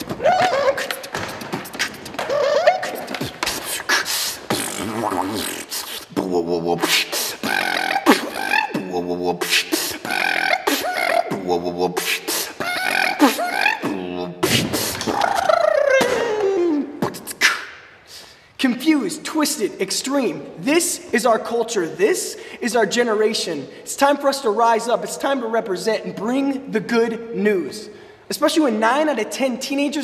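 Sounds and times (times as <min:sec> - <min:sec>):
vocal beatboxing: 0:00.0 - 0:18.3.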